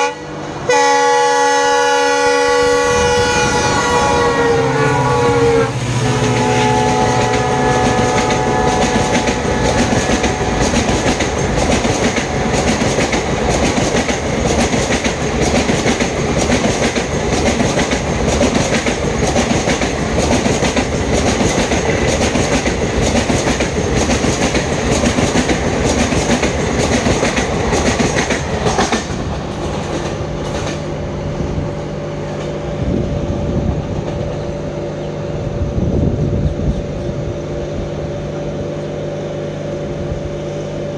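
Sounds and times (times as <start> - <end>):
diesel locomotive horn: 0.0 - 11.2, 11.8 - 13.1
train wheels clickety-clack: 5.9 - 31.0.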